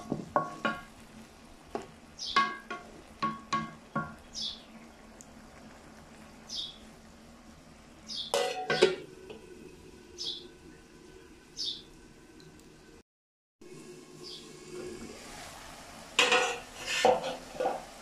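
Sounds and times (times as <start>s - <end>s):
metal lid clanking on wok: 8.3s - 9.1s, 16.2s - 17.8s
wooden spatula scraping wok: 16.2s - 18.0s.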